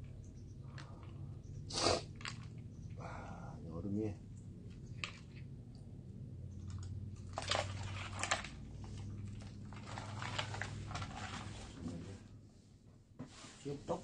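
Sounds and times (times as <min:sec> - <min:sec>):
steady low hum: 0:00.0 - 0:14.0
plastic tray and ice crunching: 0:07.3 - 0:11.5.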